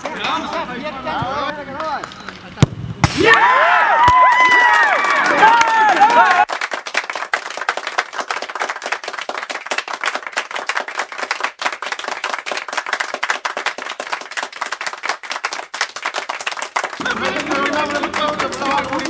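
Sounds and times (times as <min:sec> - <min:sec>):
group of people clapping: 0:04.0 - 0:19.0.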